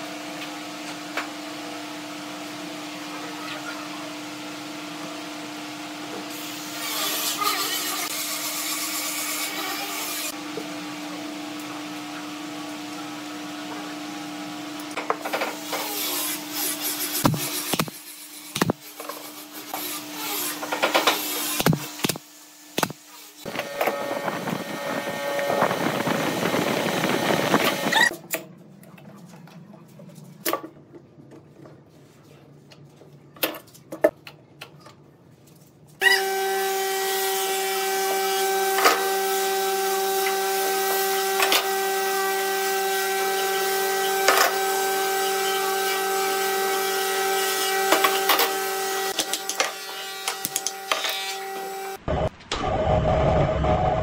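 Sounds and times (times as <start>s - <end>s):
steady machine hum: 23.5s - 28.1s.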